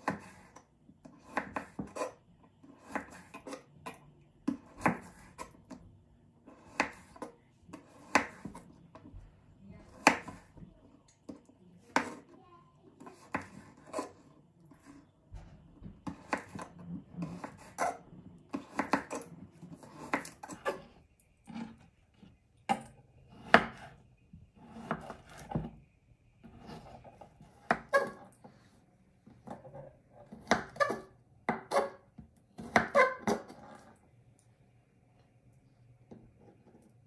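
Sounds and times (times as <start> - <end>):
knife cutting on wooden board: 0.0 - 5.8, 6.5 - 8.7, 9.9 - 10.5, 13.0 - 15.0, 16.0 - 21.8, 23.3 - 24.0, 24.6 - 25.7, 26.4 - 28.6, 29.4 - 32.0, 32.6 - 33.9.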